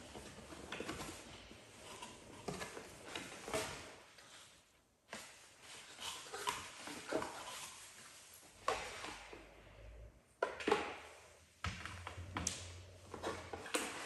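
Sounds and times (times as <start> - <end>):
paper and cardboard rustling: 0.0 - 9.5.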